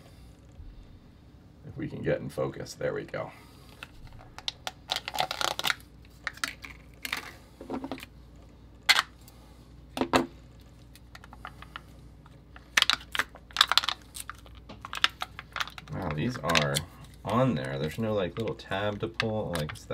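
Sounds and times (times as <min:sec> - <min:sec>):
plastic cup clicks and crinkles: 0:03.7 - 0:08.1, 0:12.6 - 0:19.9.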